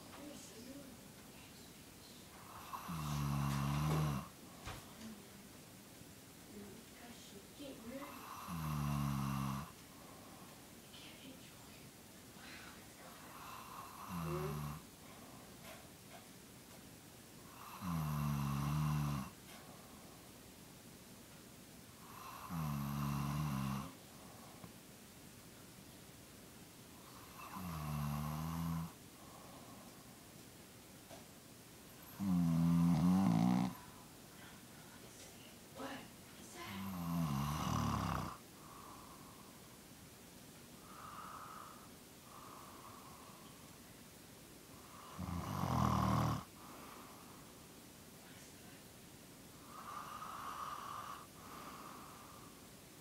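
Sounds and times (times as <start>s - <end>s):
woman snoring: 2.4s - 4.3s, 7.8s - 9.7s, 13.0s - 14.9s, 17.5s - 19.4s, 22.0s - 24.0s, 27.0s - 29.8s, 32.0s - 33.9s, 36.7s - 39.3s, 40.8s - 43.5s, 44.8s - 47.4s, 49.6s - 52.6s.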